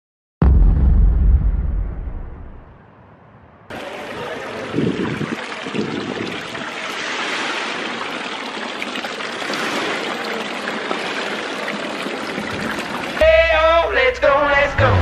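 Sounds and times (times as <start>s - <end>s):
rain falling: 3.7s - 13.2s.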